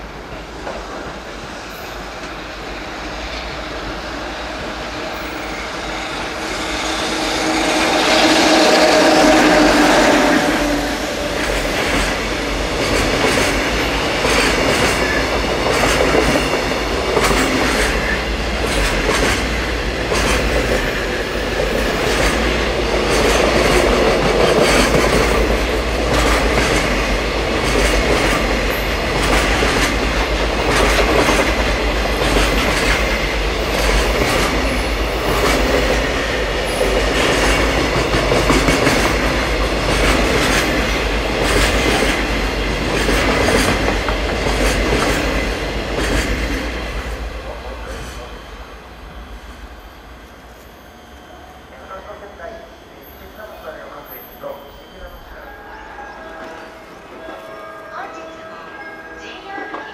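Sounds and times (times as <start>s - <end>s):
heavy train rumble: 0.0s - 59.9s
train wheels clattering over joints: 11.3s - 47.2s.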